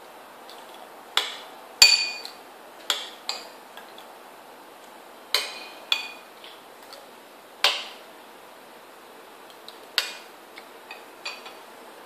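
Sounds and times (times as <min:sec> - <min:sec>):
metal spoon clinking on bowl: 0:01.8 - 0:02.3.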